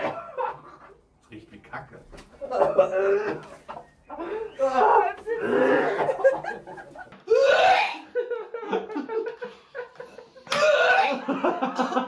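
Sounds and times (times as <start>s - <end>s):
woman retching loudly: 7.3s - 8.1s, 10.5s - 11.3s.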